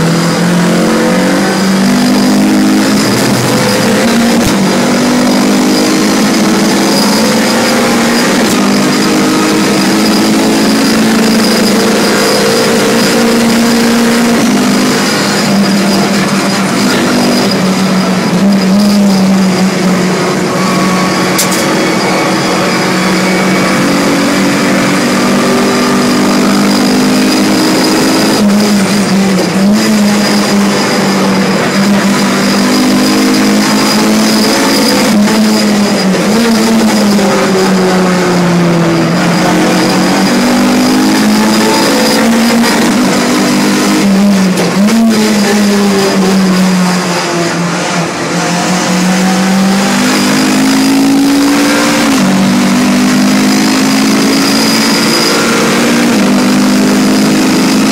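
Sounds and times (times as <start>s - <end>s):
car engine revving: 0.0s - 57.9s.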